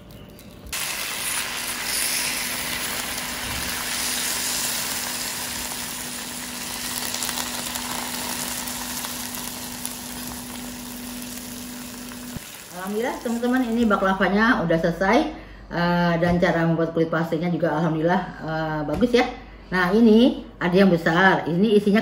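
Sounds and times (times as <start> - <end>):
pastry sizzling: 0.0 - 14.3.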